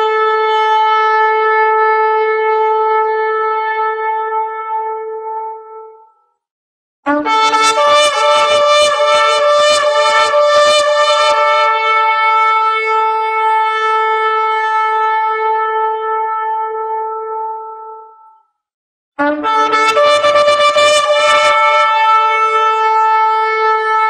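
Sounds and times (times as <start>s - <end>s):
wind instrument music: 7.1s - 18.4s, 19.2s - 24.0s.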